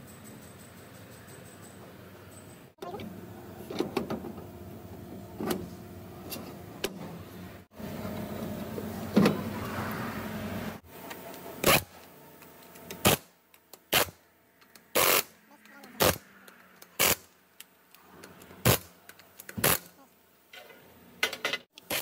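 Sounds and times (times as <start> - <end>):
metal clinks and knocks: 0.0 - 2.8
pneumatic impact wrench bursts: 11.6 - 12.0, 13.0 - 13.3, 13.9 - 14.2, 14.9 - 15.3, 16.0 - 16.2, 17.0 - 17.3, 18.6 - 19.0, 19.6 - 19.9.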